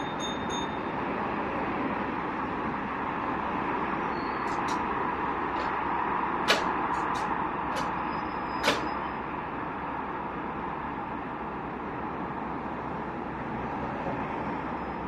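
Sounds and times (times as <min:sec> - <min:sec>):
sharp clicks: 0:04.4 - 0:04.9, 0:06.4 - 0:08.0, 0:08.6 - 0:09.0.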